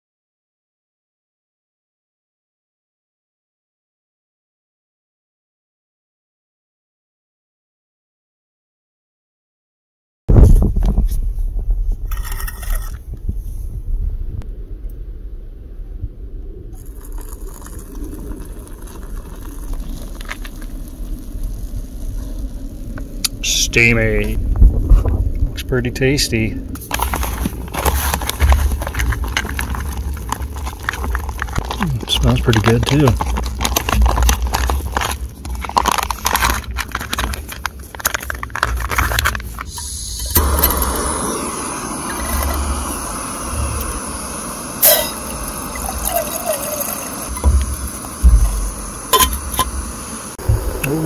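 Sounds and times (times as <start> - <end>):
steady low rumble: 10.3 - 46.0, 47.3 - 51.0
foil pouch crinkling: 16.8 - 22.6, 26.8 - 40.5
camp stove burner hissing: 16.8 - 24.3, 25.6 - 51.0.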